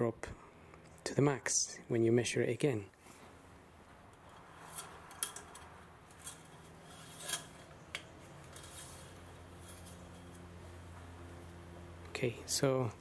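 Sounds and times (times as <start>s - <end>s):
metal dipstick scraping in tube: 4.2s - 10.4s.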